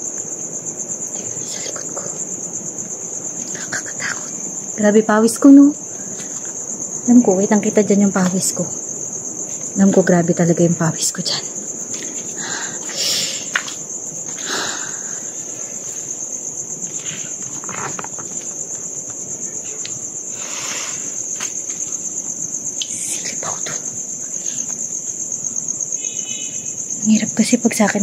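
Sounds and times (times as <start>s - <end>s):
crickets trilling: 0.0s - 28.0s
soft rustles: 11.8s - 14.5s.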